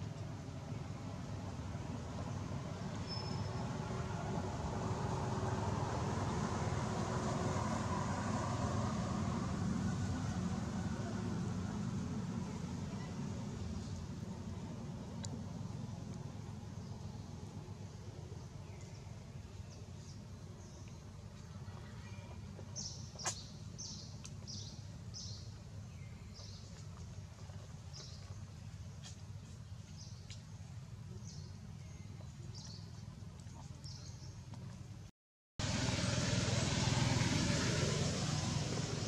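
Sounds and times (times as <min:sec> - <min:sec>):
small birds chirping: 0:02.2 - 0:03.7, 0:15.1 - 0:34.9.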